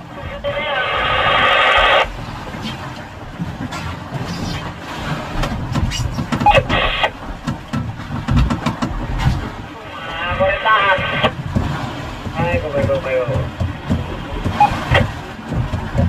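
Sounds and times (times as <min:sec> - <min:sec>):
sea: 0:00.0 - 0:16.0
wind: 0:00.0 - 0:16.0
gear knocking on wooden deck: 0:11.5 - 0:16.0.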